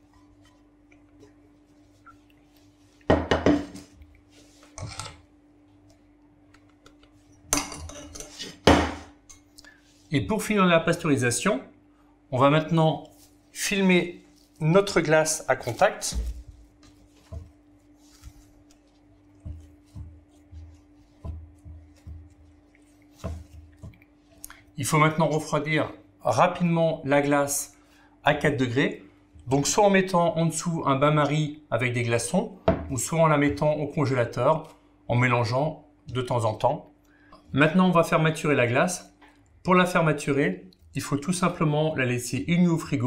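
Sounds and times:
faint hum: 0.0 - 42.0
metal utensils clattering in bowl: 7.6 - 8.6.

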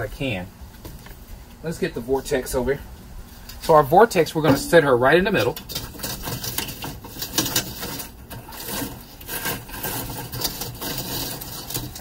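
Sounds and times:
charcoal scraping and clinking: 3.5 - 12.0.

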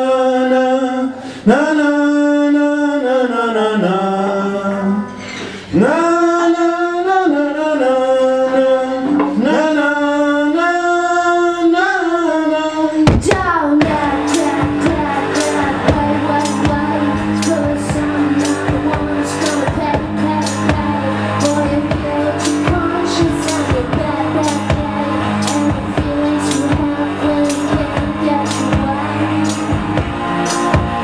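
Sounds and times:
rock band playing: 13.1 - 31.0.

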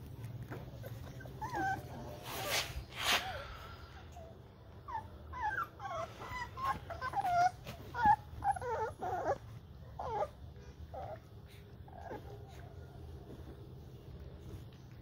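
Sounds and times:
puppies whimpering: 0.0 - 2.9, 3.6 - 15.0.

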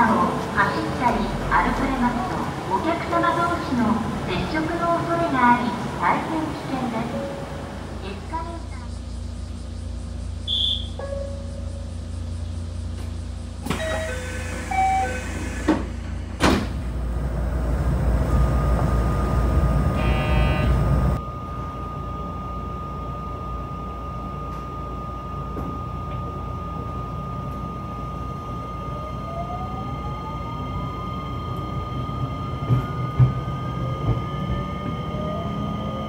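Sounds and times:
train hum with high tone: 0.0 - 36.0
train doors thudding shut: 12.9 - 17.0
door chime tones: 13.7 - 15.5.

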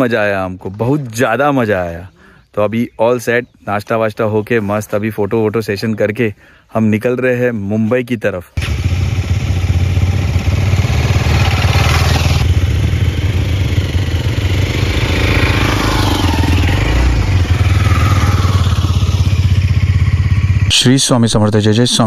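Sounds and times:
motorcycle engine running: 8.6 - 20.9.

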